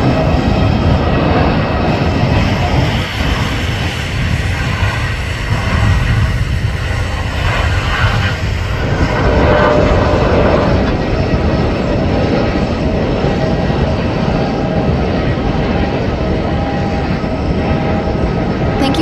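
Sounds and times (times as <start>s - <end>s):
jet engine roar: 0.0s - 19.0s.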